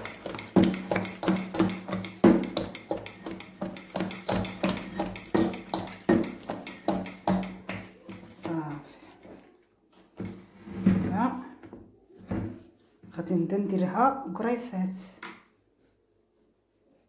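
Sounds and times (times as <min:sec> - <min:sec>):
dough thumping and slapping: 0:00.0 - 0:08.9.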